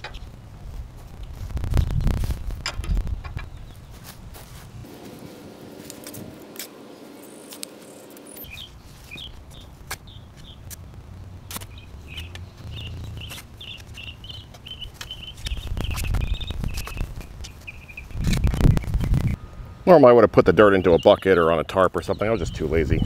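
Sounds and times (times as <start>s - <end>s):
shovel scraping soil: 4.8s - 9.2s
bird chirping: 6.7s - 10.7s, 11.6s - 19.4s, 20.5s - 23.0s.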